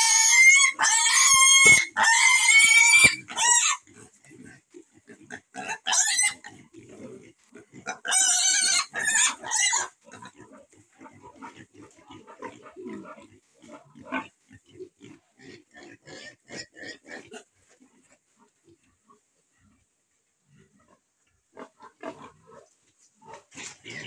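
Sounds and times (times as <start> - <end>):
piglets squealing: 0.0 - 3.9, 5.6 - 6.5, 7.8 - 10.3
piglets grunting: 0.0 - 17.5.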